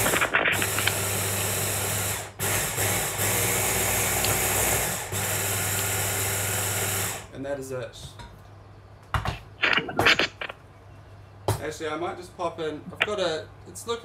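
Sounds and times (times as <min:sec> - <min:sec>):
hand blender chopping: 0:00.0 - 0:01.2, 0:01.9 - 0:07.2.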